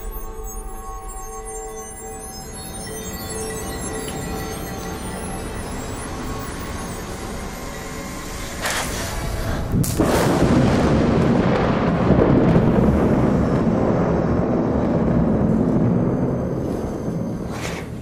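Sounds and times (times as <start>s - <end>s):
thunder crackle: 9.7s - 18.0s
sharp thunderclap: 9.8s - 16.2s
rolling thunder rumble: 9.8s - 17.5s.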